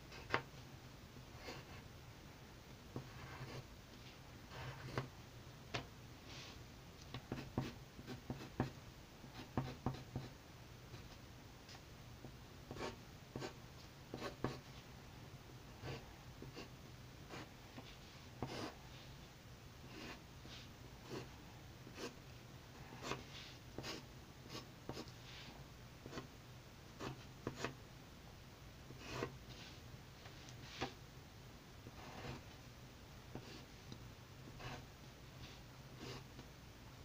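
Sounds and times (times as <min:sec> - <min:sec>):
pencil scratching on paper: 0:01.4 - 0:01.8, 0:03.0 - 0:03.7, 0:04.5 - 0:05.1, 0:07.3 - 0:08.7, 0:09.3 - 0:10.3, 0:12.7 - 0:14.7, 0:15.8 - 0:16.7, 0:17.3 - 0:17.5, 0:18.4 - 0:18.8, 0:19.9 - 0:21.3, 0:21.9 - 0:22.2, 0:22.9 - 0:26.3, 0:27.0 - 0:27.8, 0:28.9 - 0:29.7, 0:31.9 - 0:32.5, 0:33.3 - 0:33.7, 0:34.5 - 0:36.3.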